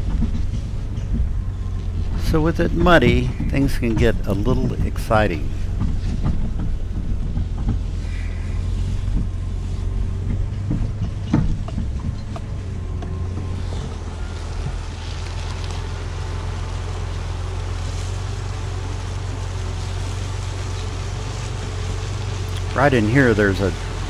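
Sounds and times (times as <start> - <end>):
engine running at low speed: 0.0 - 24.0
vehicle knocks and rattles: 0.0 - 24.0.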